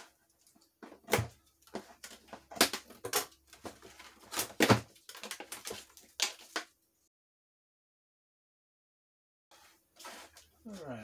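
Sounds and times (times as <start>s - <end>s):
plastic straps scraping and snapping: 0.0s - 6.7s.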